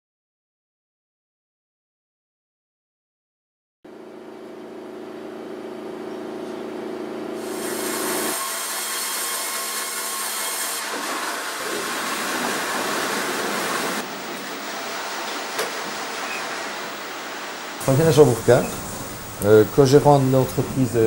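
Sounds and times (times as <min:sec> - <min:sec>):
sawmill machine hum: 0:03.9 - 0:21.0
wood being sawn: 0:07.4 - 0:17.0.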